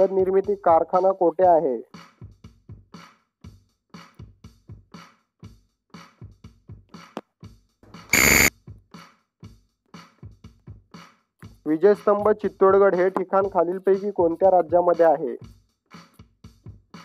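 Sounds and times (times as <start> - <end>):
electronic timer ticking: 8.1 - 8.5
loud buzzer: 8.1 - 8.5.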